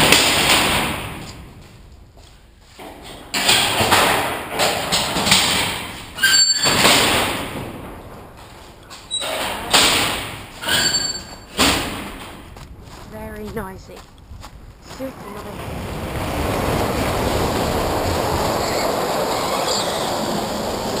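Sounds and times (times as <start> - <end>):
steel sliding doors rumbling: 0.0 - 1.6, 2.9 - 12.6, 15.4 - 21.0
door rollers squeaking: 3.0 - 12.4, 15.5 - 21.0.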